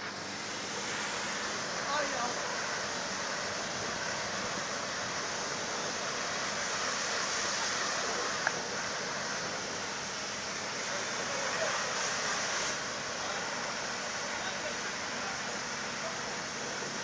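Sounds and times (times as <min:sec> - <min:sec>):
pressure washer spraying water: 0:00.0 - 0:17.0.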